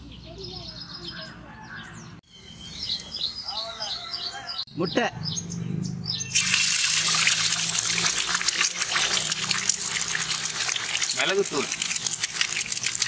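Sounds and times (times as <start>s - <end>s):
eggs sizzling in hot oil: 6.3s - 13.0s.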